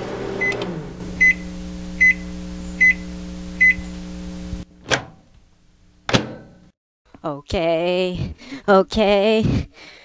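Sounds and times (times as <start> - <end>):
microwave oven humming: 0.0 - 4.8
microwave beeps: 0.4 - 3.9.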